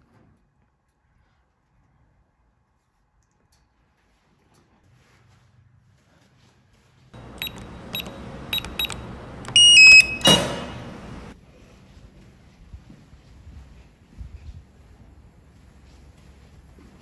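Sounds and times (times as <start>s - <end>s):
beep tones: 7.2s - 11.3s
door lock clacking: 7.2s - 11.3s
keypad beeps: 7.2s - 11.3s.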